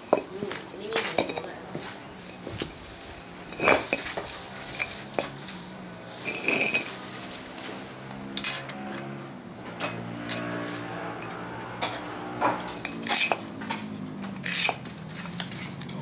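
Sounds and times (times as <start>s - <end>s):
bricks knocking and scraping: 3.6s - 5.4s, 14.4s - 15.0s.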